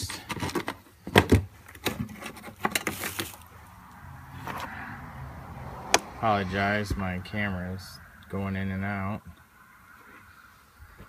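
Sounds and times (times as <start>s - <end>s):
wires and plug rattling: 0.0s - 3.5s.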